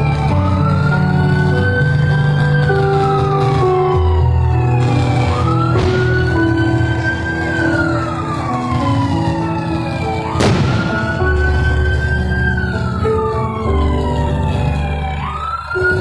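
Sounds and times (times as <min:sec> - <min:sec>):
music with held notes: 0:00.0 - 0:16.0
siren wailing: 0:00.0 - 0:16.0
sharp crack: 0:04.7 - 0:09.0, 0:10.3 - 0:12.2.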